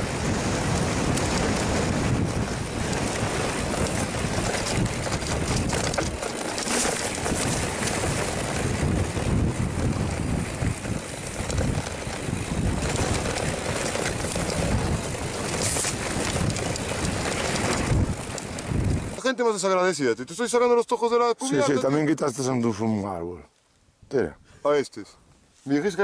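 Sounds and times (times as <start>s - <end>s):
wind buffeting microphone: 0.0s - 19.2s
tyres rolling on dirt: 0.0s - 19.7s
bike knocks and rattles: 0.8s - 19.2s.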